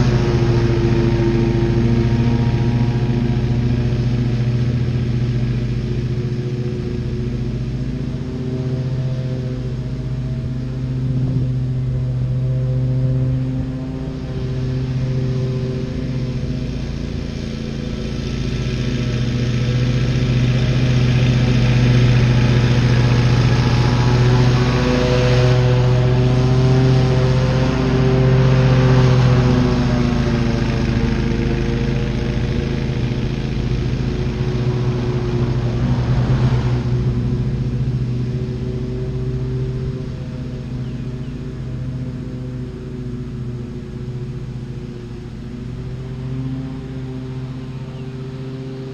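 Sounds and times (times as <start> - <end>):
mower engine cutting grass: 0.0 - 48.9.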